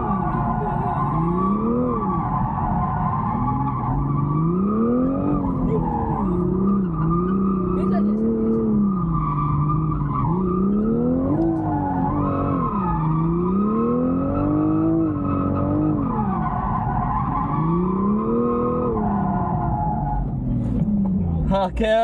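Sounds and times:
car engine revving: 0:00.0 - 0:22.0
tyres skidding on asphalt: 0:00.0 - 0:22.0.

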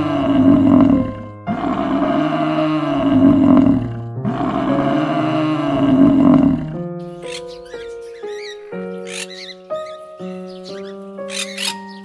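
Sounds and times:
animal roar: 0:00.0 - 0:07.7
background music: 0:00.0 - 0:12.0.

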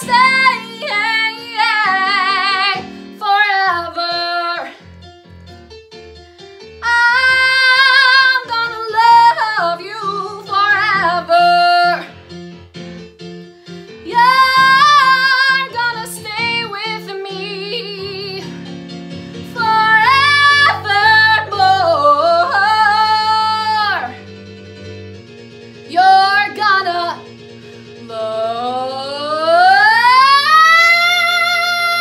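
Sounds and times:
woman singing: 0:00.0 - 0:04.8, 0:06.8 - 0:12.1, 0:14.0 - 0:18.5, 0:19.5 - 0:24.2, 0:25.9 - 0:27.3, 0:28.0 - 0:32.0
instrumental backing track: 0:00.0 - 0:32.0.

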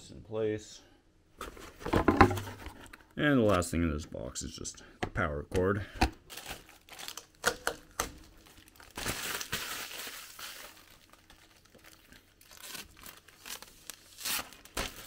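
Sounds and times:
plastic packaging crinkling: 0:06.2 - 0:15.0.

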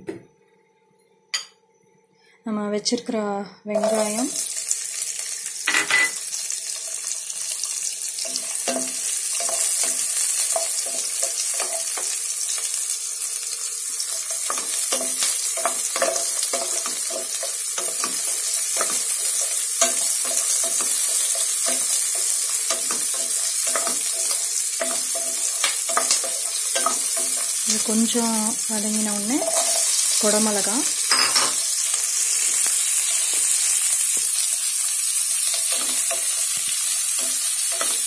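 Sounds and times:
onions sizzling in oil: 0:03.7 - 0:38.0.

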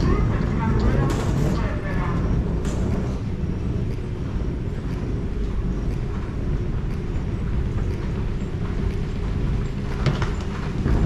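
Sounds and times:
low background rumble: 0:00.0 - 0:11.0
faint light ticks: 0:00.8 - 0:11.0.

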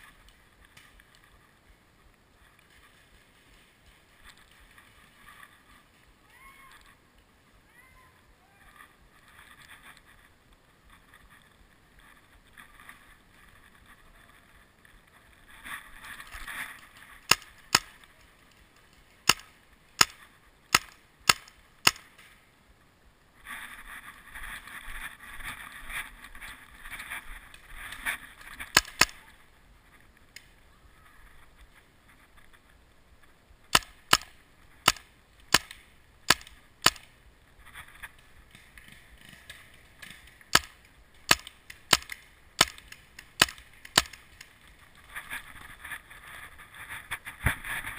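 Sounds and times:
rustling and scuffling: 0:00.0 - 0:07.2.

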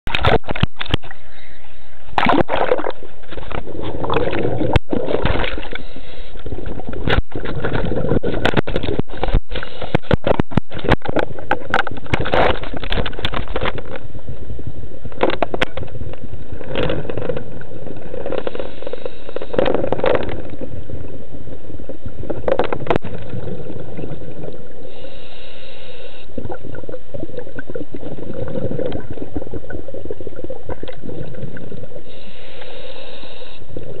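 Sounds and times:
underwater bubbles gurgling: 0:00.1 - 0:34.0
sharp clicks and knocks: 0:06.9 - 0:14.0, 0:15.1 - 0:17.5.

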